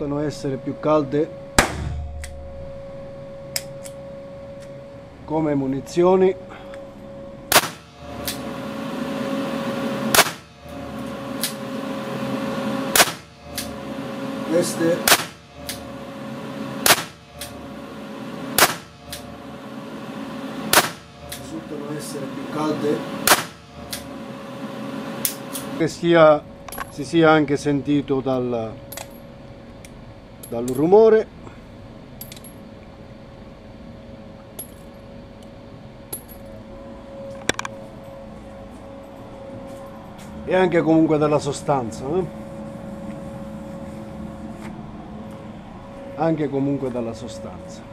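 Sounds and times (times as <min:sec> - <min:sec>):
steady background hum: 0:00.0 - 0:47.9
revolver gunshots: 0:07.5 - 0:11.9, 0:12.8 - 0:21.4, 0:23.0 - 0:24.2.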